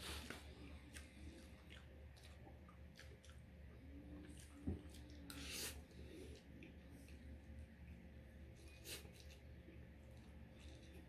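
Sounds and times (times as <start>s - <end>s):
person chewing noodles: 0.0s - 11.0s.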